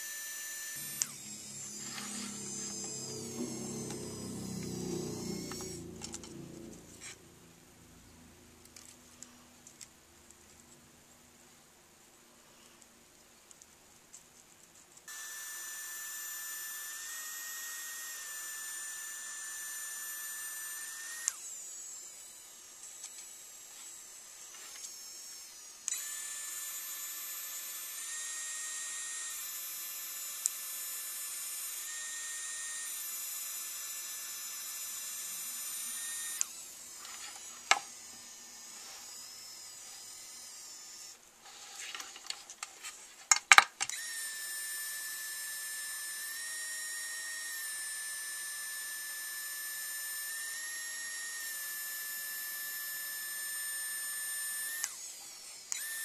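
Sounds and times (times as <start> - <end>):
printing pen motor whining: 0.0 - 7.4, 15.0 - 43.0, 43.8 - 56.0.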